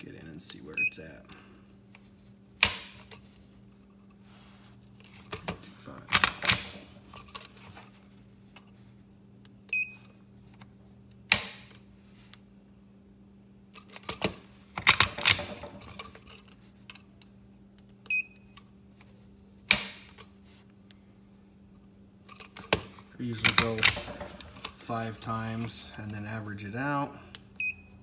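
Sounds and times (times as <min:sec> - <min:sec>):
trigger gauge beep: 0:27.6 - 0:28.0.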